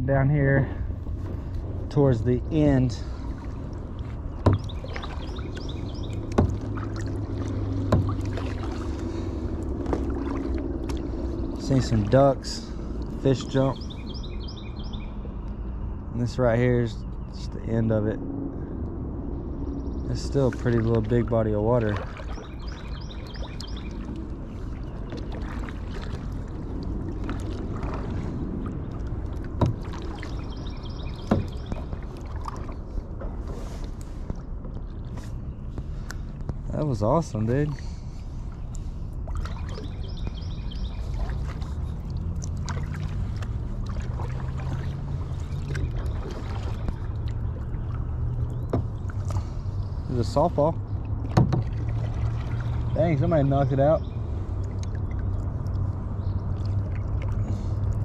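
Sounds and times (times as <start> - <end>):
paddle splashing water: 0.8 - 14.3, 20.2 - 58.0
sharp knocks: 51.3 - 51.7.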